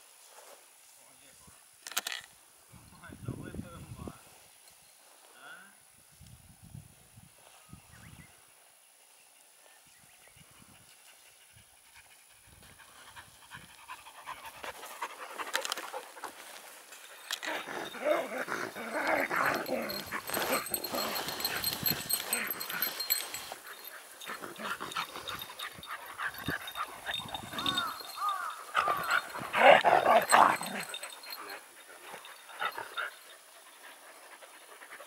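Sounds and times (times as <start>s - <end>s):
dog panting: 11.0s - 16.4s, 17.0s - 35.0s.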